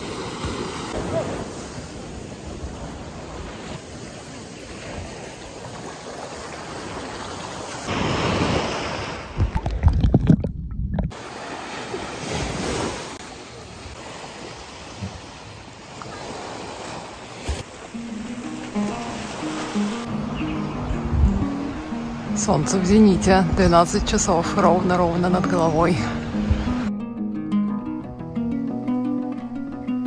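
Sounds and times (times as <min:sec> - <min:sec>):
sea waves washing on shore: 0:00.0 - 0:09.7, 0:11.1 - 0:26.9
wind: 0:00.0 - 0:30.0
wind buffeting microphone: 0:20.0 - 0:24.3.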